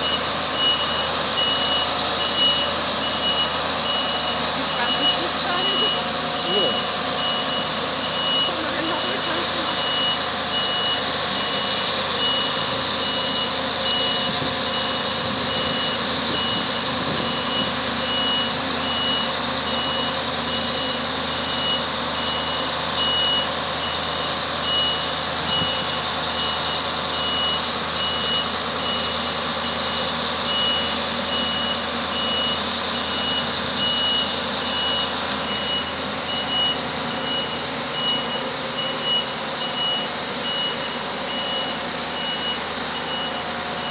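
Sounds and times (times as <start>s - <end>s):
combine harvester engine running: 0.0s - 43.9s
reversing alarm beeping: 0.0s - 43.9s.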